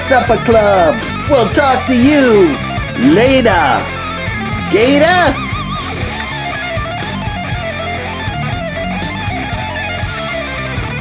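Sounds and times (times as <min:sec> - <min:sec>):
electric guitar music with beat: 0:00.0 - 0:11.0.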